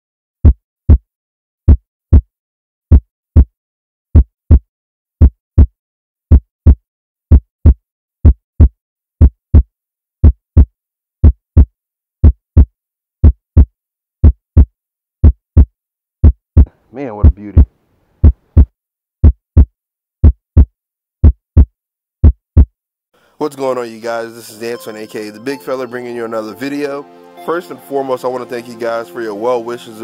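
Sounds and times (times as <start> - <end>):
heartbeat thumps: 0.4 - 1.0, 1.7 - 2.3, 2.9 - 3.5, 4.2 - 4.6, 5.2 - 5.7, 6.3 - 22.7.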